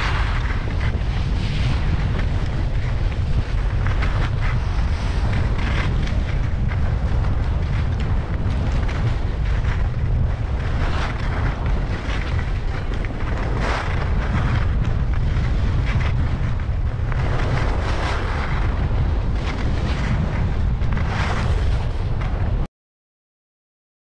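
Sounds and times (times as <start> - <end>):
ski edges scraping snow: 0.0 - 2.6
wind buffeting microphone: 0.0 - 22.7.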